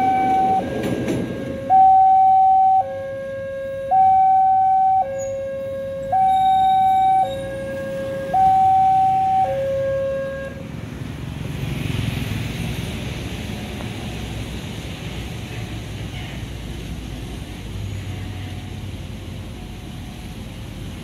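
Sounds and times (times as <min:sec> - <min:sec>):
rushing noise: 0:00.0 - 0:01.9
two-tone crossing alarm: 0:00.0 - 0:10.6.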